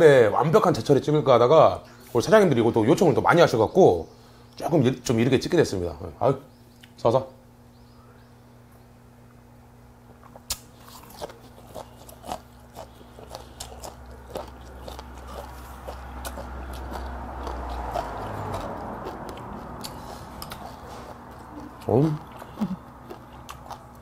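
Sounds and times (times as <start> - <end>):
person chewing and crunching: 10.2 - 24.0.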